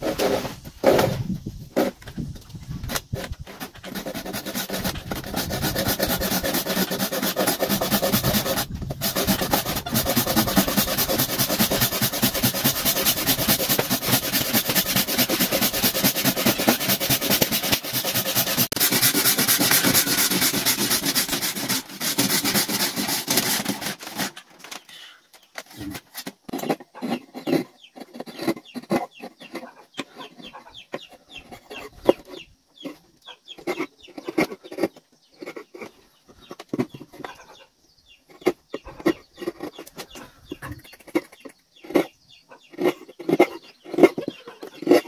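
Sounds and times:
saw cutting wood: 2.9 - 24.4, 25.8 - 36.0.

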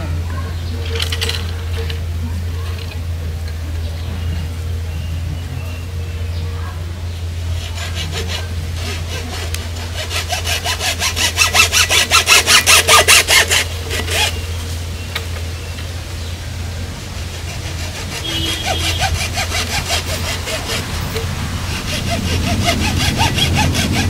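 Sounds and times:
steady low hum: 0.0 - 24.0
hand saw cutting wood: 7.4 - 14.5, 17.0 - 24.0.

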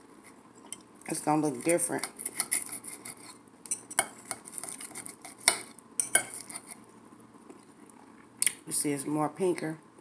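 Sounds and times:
cutlery scraping a plate: 1.6 - 6.8
knife sawing meat: 2.2 - 3.4.

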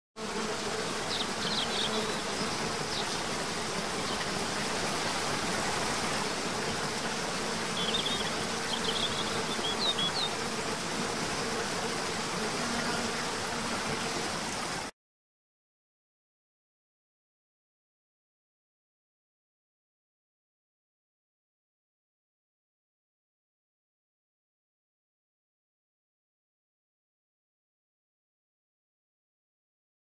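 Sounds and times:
buzzing of flying insects: 0.2 - 14.9.

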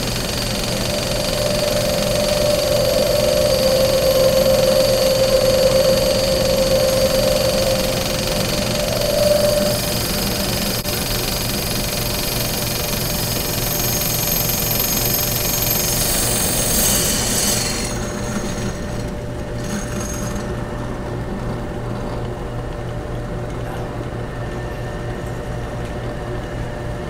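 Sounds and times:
drill press motor hum: 0.0 - 11.2
drill bit grinding glass: 0.3 - 10.8, 15.7 - 18.8.

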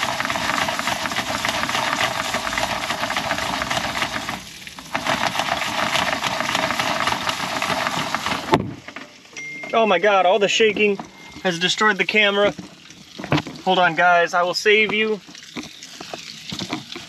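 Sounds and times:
pan rattling on stove grate: 0.0 - 9.2
kernels and oil sizzling: 0.0 - 17.0.

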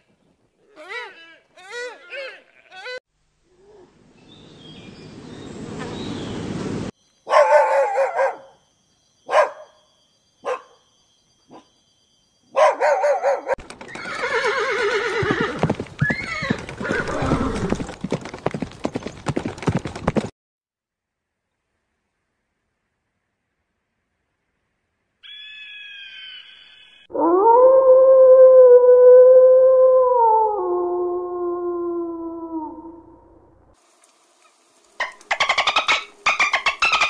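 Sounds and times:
puppy barking: 7.3 - 8.6, 9.3 - 9.8, 10.4 - 10.8, 12.6 - 13.6
horses whinnying: 13.8 - 18.6.

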